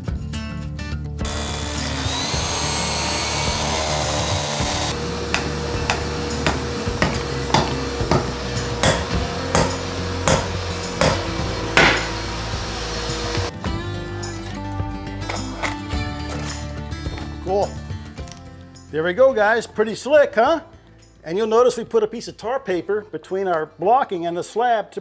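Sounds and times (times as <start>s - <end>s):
hammer blows on nail anchors: 1.2s - 12.3s
rotary hammer drilling concrete: 1.2s - 13.5s.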